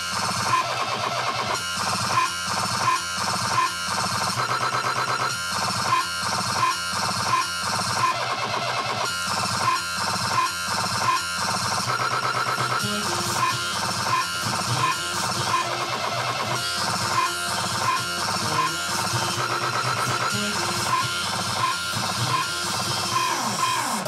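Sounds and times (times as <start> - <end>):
dubstep music: 11.0 - 24.0.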